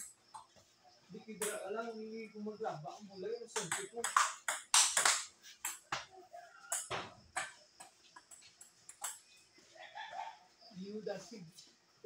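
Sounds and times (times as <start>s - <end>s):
table tennis ball clicks: 3.6s - 5.9s.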